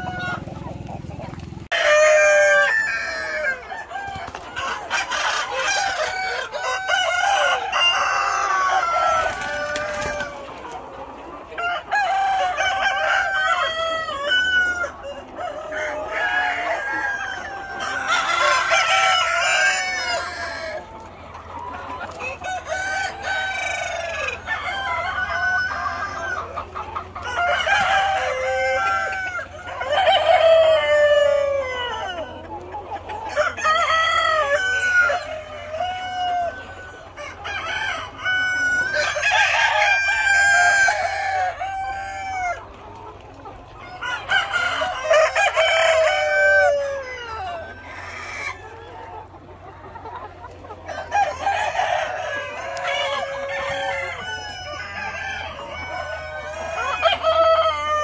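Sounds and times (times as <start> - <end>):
hens clucking: 0.0 - 58.0
roosters crowing: 0.0 - 58.0.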